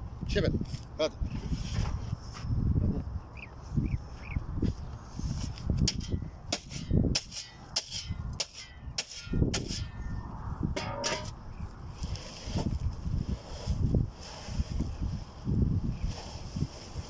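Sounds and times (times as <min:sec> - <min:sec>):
shovel blade scraping: 0:05.3 - 0:10.1, 0:10.8 - 0:11.4
shovel chopping into sand and gravel: 0:05.5 - 0:10.1, 0:10.8 - 0:11.4.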